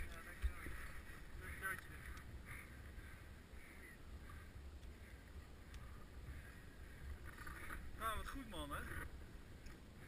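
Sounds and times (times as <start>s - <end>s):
low wind rumble on microphone: 0.0s - 10.0s
faint high calls: 2.4s - 9.0s.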